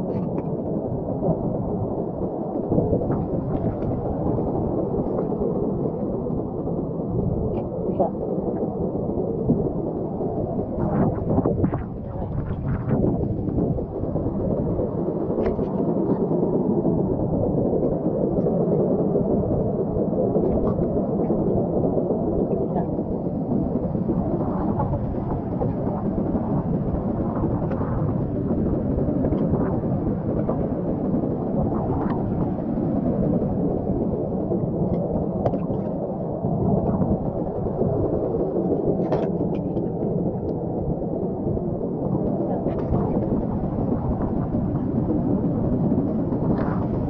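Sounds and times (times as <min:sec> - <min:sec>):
low outdoor rumble: 0:00.0 - 0:47.0
muffled underwater rush: 0:00.0 - 0:47.0.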